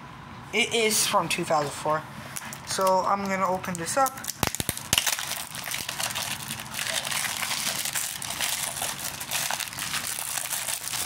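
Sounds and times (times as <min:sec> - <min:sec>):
plastic shrink-wrap crinkling: 0:02.6 - 0:11.0.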